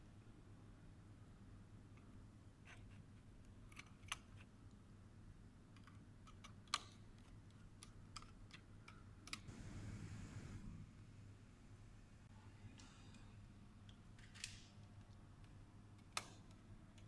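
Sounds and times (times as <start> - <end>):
small clicks of wires at terminal: 5.7 - 9.5, 13.8 - 17.0.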